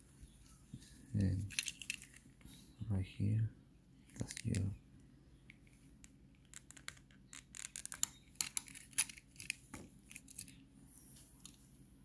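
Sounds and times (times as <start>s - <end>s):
plastic clicks and cracks: 5.5s - 10.6s.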